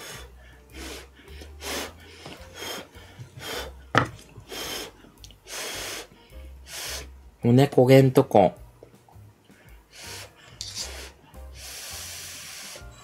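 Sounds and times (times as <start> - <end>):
person blowing on hot food: 0.0 - 3.8, 4.5 - 7.2, 9.9 - 13.0.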